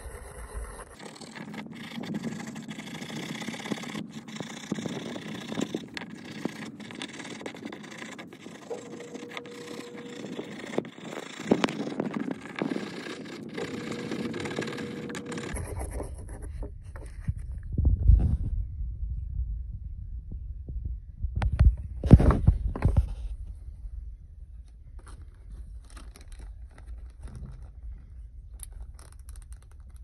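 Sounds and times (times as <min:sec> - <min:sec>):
wire brush scrubbing rusty metal: 0:01.0 - 0:15.6
low rumble: 0:15.5 - 0:25.9.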